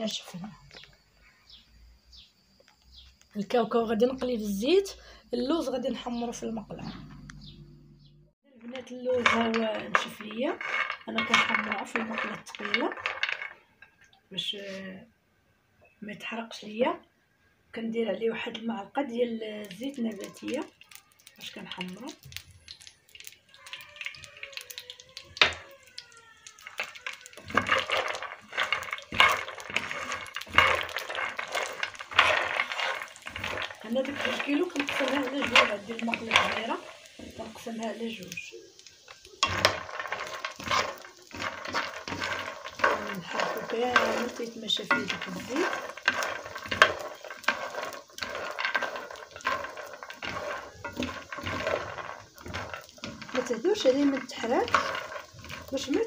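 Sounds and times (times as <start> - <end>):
almonds rattling in frying pan: 8.6 - 14.7, 18.2 - 56.0.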